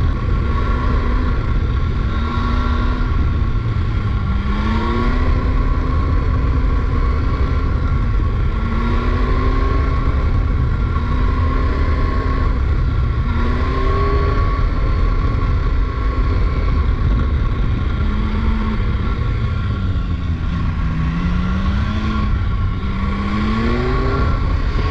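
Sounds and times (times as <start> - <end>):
motorcycle engine revving: 0.0 - 24.9
wind rumble on microphone: 0.0 - 24.9.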